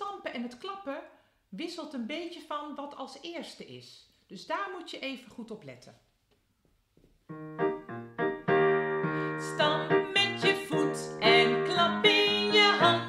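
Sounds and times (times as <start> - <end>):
digital piano chords: 7.3 - 13.0.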